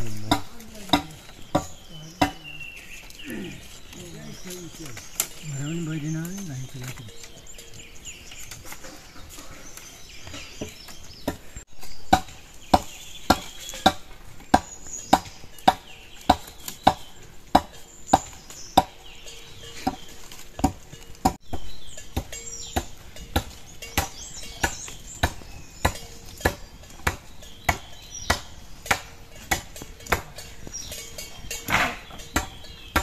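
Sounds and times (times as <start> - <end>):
steady chopping: 0.0 - 2.4, 12.1 - 19.0, 22.1 - 30.4, 32.4 - 33.0
birds chirping: 0.0 - 33.0.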